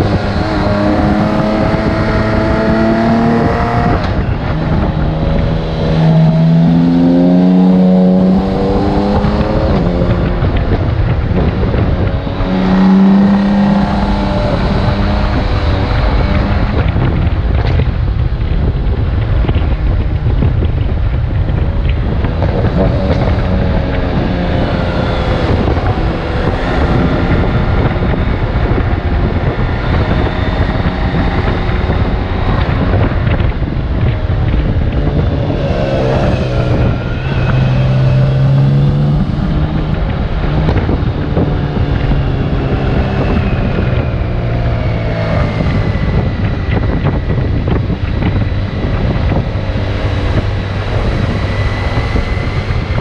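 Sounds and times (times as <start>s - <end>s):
motorcycle engine revving: 0.0s - 53.0s
wind on microphone: 0.0s - 53.0s.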